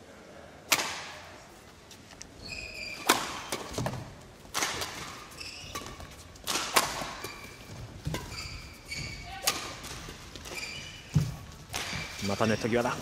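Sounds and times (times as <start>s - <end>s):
shoes squeaking on court floor: 1.9s - 13.0s
rackets striking shuttlecock: 3.0s - 10.6s.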